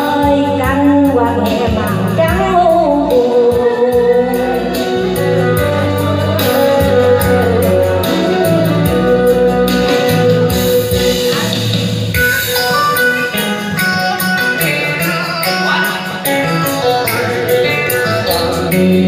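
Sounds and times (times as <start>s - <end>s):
instrumental music with bass beat: 0.0s - 19.0s.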